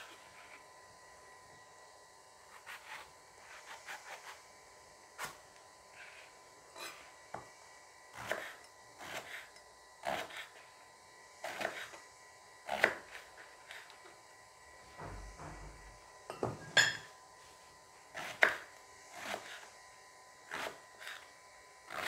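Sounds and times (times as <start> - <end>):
knife cutting eggplant: 2.4 - 4.4, 8.2 - 10.7, 11.4 - 12.0, 12.7 - 14.0, 18.1 - 19.7, 20.5 - 21.3.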